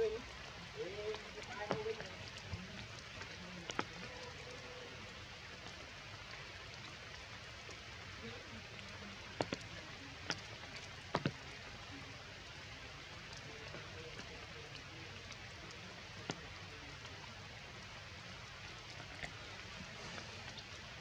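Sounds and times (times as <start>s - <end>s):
rain on tree leaves: 0.0s - 21.0s.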